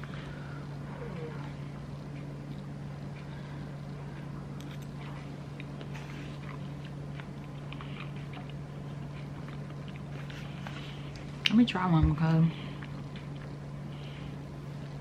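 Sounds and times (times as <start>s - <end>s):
person chewing food: 0.0s - 11.6s, 12.6s - 15.0s
steady low hum: 0.0s - 15.0s.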